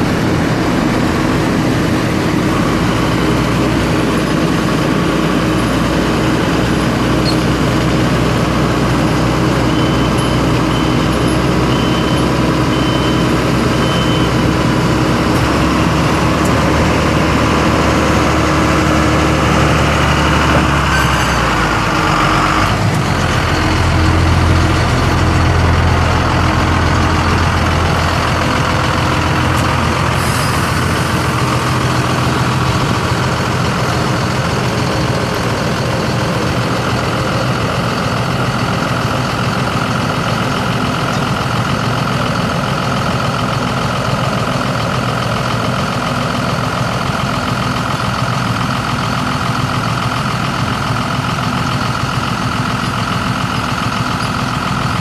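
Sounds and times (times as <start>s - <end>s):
diesel truck engine idling: 0.0s - 55.0s.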